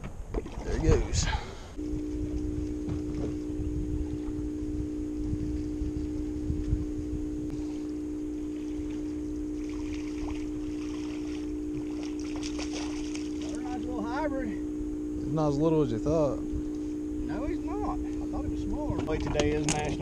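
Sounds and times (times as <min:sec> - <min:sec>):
wind rumbling on microphone: 0:00.0 - 0:13.4
boat motor humming: 0:00.0 - 0:20.0.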